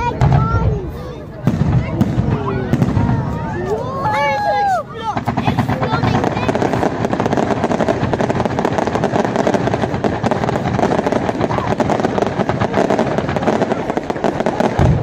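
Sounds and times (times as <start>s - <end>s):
fireworks crackling: 0.0s - 15.0s.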